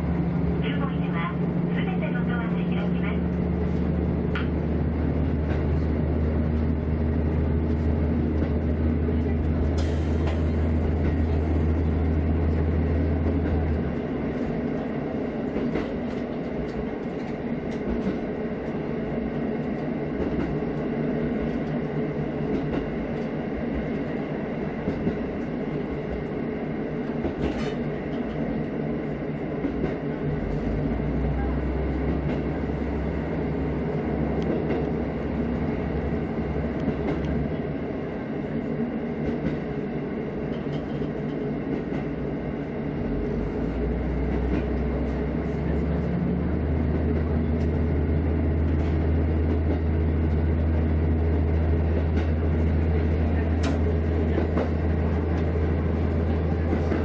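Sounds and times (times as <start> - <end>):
low engine drone: 0.0 - 15.7
wheels rumbling on rails: 0.0 - 57.0.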